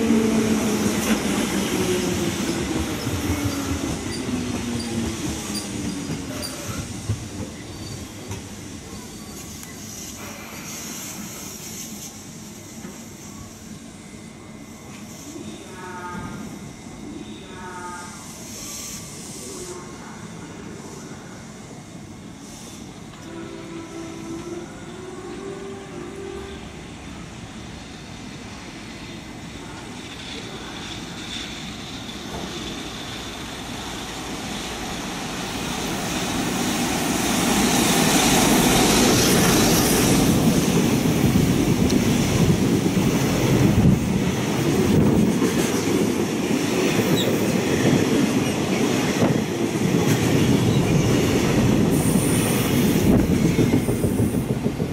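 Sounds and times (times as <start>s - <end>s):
wheels on rail: 0.0s - 10.4s
freight train passing: 0.0s - 54.9s.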